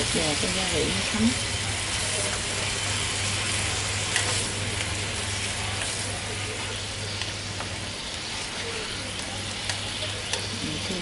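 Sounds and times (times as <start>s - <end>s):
chicken sizzling in a frying pan: 0.0s - 11.0s
chopsticks clicking: 9.1s - 10.6s.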